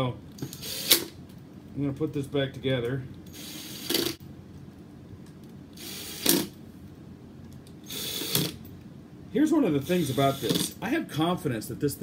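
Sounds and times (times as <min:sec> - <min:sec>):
impact driver driving screws: 0:05.8 - 0:06.6, 0:07.9 - 0:08.6.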